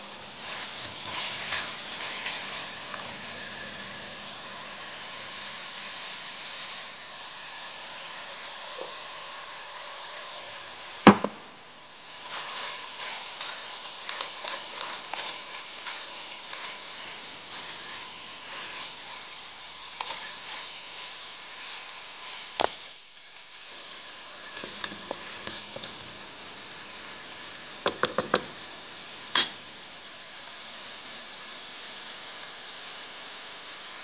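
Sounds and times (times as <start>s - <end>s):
spatula scraping a wok: 0.0s - 11.0s, 11.9s - 27.3s
food sizzling in a wok: 0.0s - 34.0s.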